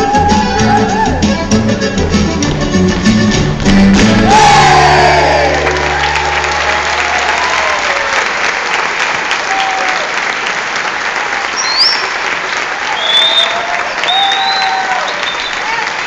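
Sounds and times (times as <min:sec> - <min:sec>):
music: 0:00.0 - 0:07.8
audience applauding: 0:03.5 - 0:16.0
crowd shouting: 0:04.0 - 0:08.2.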